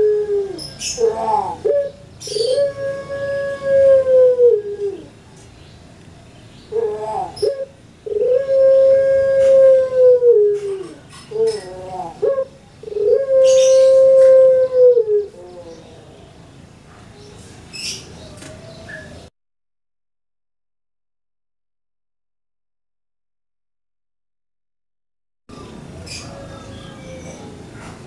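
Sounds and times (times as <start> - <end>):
dove cooing: 0.0 - 5.2, 6.7 - 16.2.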